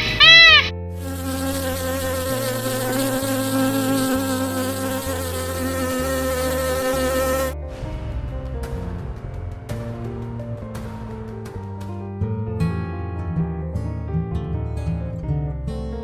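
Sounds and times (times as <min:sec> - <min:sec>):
wasps buzzing: 0:00.0 - 0:07.6.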